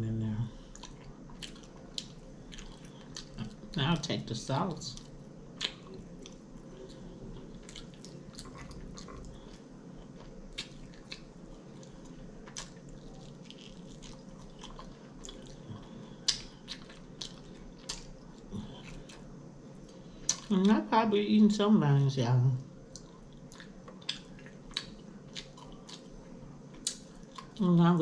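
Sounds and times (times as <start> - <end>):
faint steady hum: 0.0 - 28.0
mouth clicks and smacks chewing: 22.9 - 26.1.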